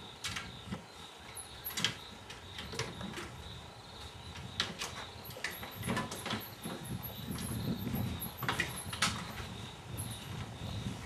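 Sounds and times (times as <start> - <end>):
crickets trilling: 0.0 - 11.0
sharp knocks and rattles: 4.3 - 10.1.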